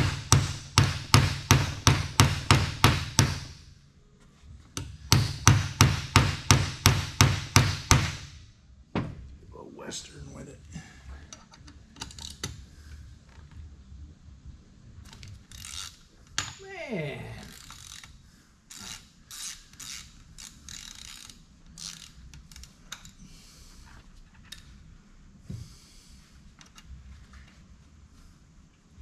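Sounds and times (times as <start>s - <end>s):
ratchet clicking and scraping: 11.3s - 12.6s, 15.0s - 16.6s, 17.4s - 23.2s.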